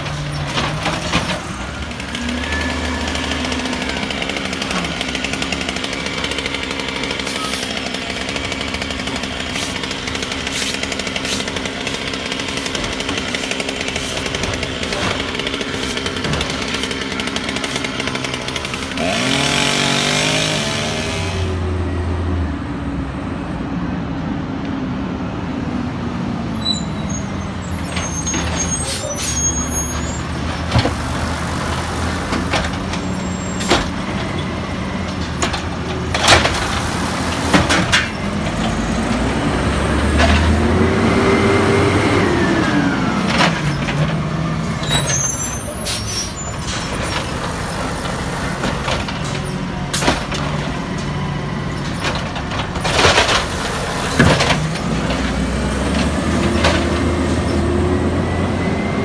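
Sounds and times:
garbage truck engine revving: 0.0s - 21.8s, 27.5s - 59.0s.

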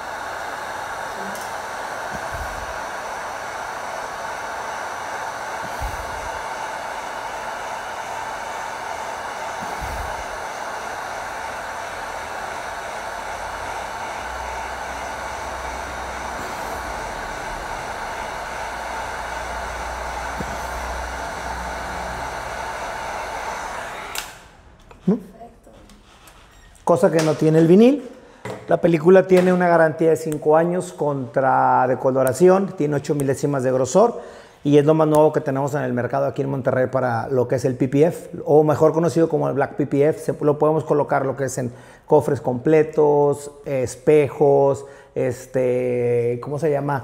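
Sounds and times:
heat gun blowing: 0.0s - 25.2s, 29.3s - 35.5s.

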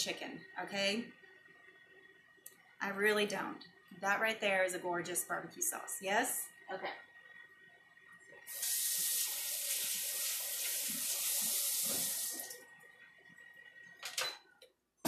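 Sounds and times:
faucet running into metal sink: 8.5s - 12.6s.

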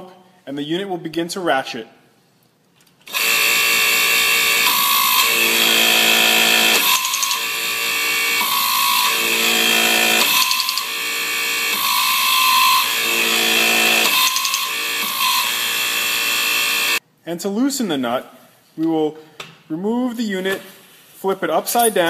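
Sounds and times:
hydraulic pump running: 3.1s - 17.0s
torque wrench ratchet clicks: 6.6s - 7.5s, 10.2s - 11.0s, 14.0s - 15.0s.

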